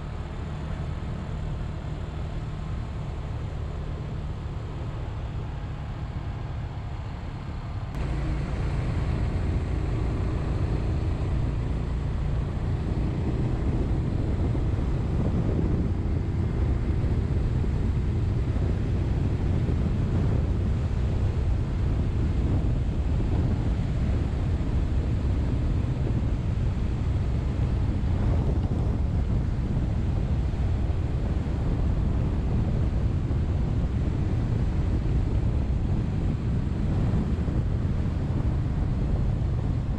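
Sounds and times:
motorcycle engine running: 7.9 - 39.9
wind buffeting microphone: 7.9 - 39.9.

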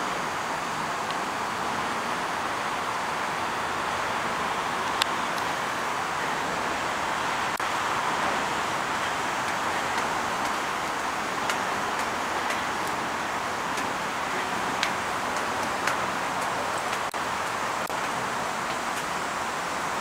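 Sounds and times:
city road traffic: 0.0 - 20.0
faint ticks: 9.5 - 13.0.

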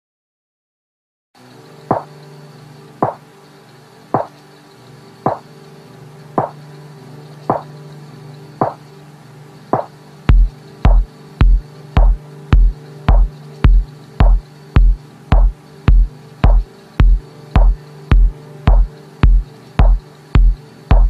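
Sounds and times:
low synth pad: 1.5 - 21.0
dripping percussion hits: 9.8 - 21.0
kick drum: 9.8 - 21.0.

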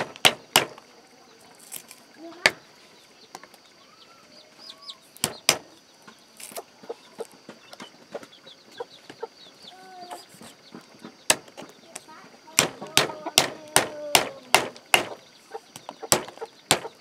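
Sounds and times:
cleaver chopping on wooden block: 0.0 - 0.8, 12.6 - 15.2, 15.9 - 17.0
faint high bird chirps: 0.9 - 17.0
chickens clucking: 4.3 - 13.4, 15.1 - 17.0.

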